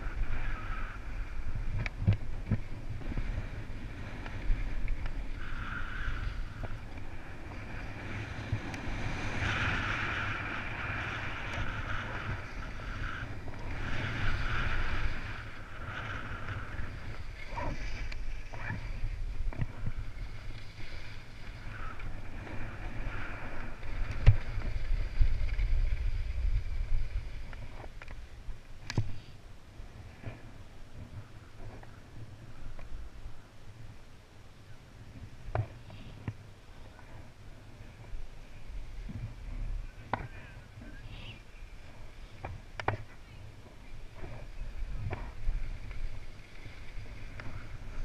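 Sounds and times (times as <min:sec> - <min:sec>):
skis sliding on snow: 0:00.0 - 0:34.0, 0:35.0 - 0:48.0
wind buffeting microphone: 0:00.0 - 0:34.0.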